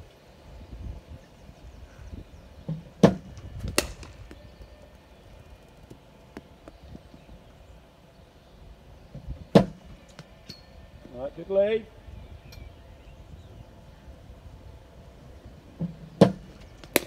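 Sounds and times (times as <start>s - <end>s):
bat hitting ball: 3.0s - 4.4s, 16.2s - 17.0s.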